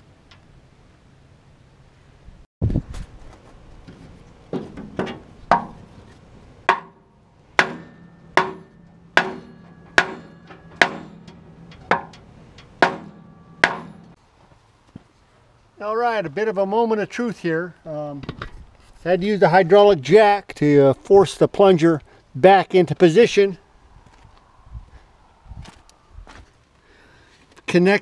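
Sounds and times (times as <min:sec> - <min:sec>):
hammer blows with metallic ring: 0:06.7 - 0:14.2.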